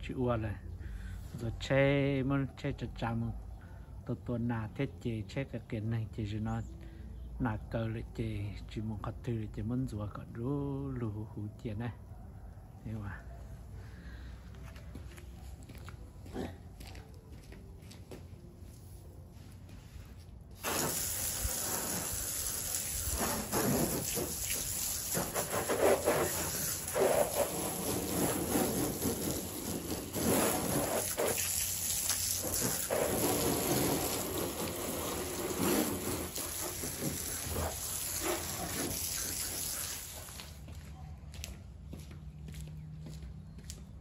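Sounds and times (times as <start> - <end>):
hose nozzle spraying water on car: 20.5 - 40.6.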